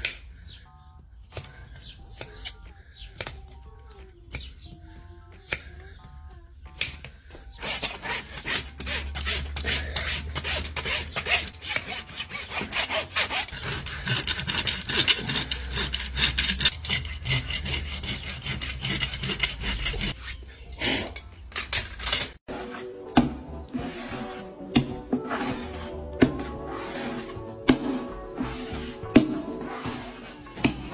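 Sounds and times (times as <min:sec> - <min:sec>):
hoof rasp filing hoof: 0:07.1 - 0:30.9.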